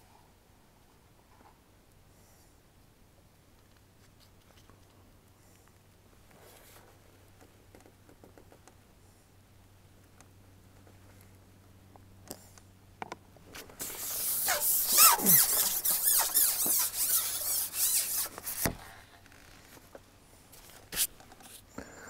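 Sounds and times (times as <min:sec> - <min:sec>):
fishing pole sections squeaking: 0:13.8 - 0:19.6.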